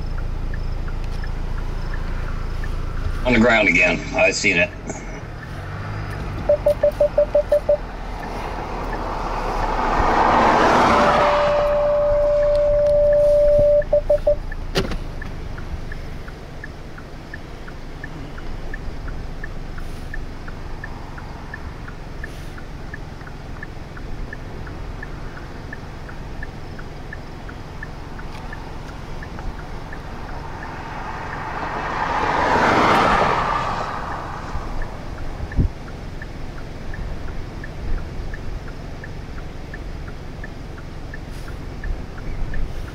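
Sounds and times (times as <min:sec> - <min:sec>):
faint regular ticking: 0:00.0 - 0:03.8, 0:04.4 - 0:09.8, 0:12.0 - 0:32.4, 0:34.2 - 0:42.9
vehicle passing on road: 0:00.0 - 0:42.9
wind noise: 0:34.3 - 0:35.8.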